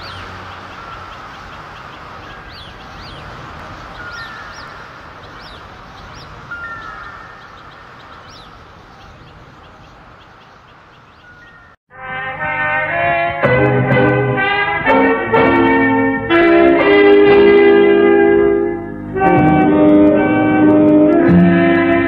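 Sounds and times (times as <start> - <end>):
birds chirping and whistling: 0.0 - 11.8.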